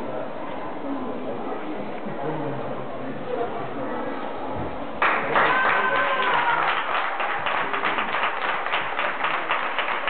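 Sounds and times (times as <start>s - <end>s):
spectators applauding: 5.0s - 10.0s.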